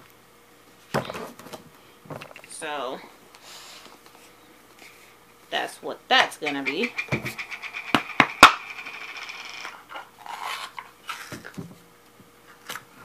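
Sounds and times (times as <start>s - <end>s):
jar rubbing and handling: 6.2s - 11.3s.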